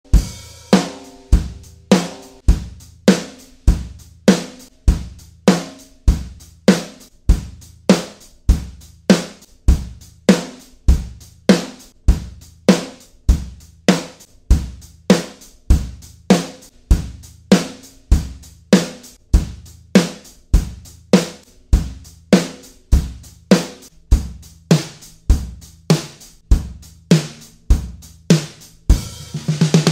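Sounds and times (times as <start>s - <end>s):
snare drum strokes: 0.1s - 9.5s, 10.3s - 10.8s, 16.3s - 29.9s.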